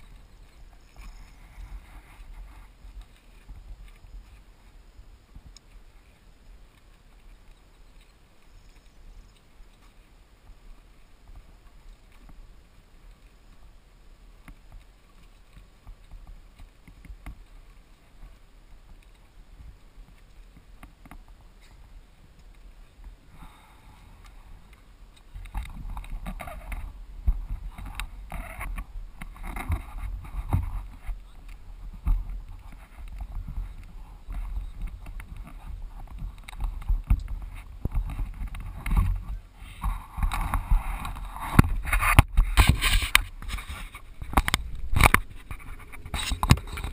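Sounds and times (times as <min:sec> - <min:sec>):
wind buffeting microphone: 0:23.0 - 0:46.9
camera handling knocks and rubbing: 0:36.5 - 0:46.9.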